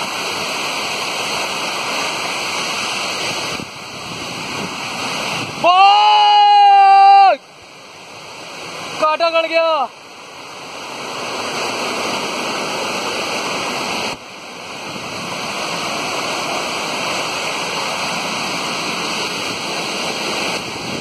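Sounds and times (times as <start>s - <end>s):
river rushing over boulders: 0.0s - 21.0s.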